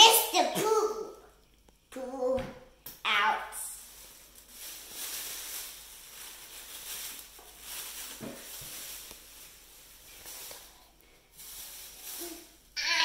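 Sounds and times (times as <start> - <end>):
plastic bag rustling: 3.6 - 12.8.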